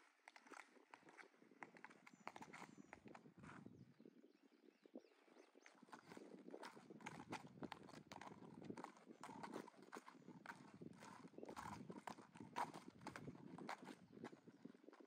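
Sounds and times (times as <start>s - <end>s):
hooves clip-clopping on pavement: 0.0s - 3.8s, 5.4s - 15.0s.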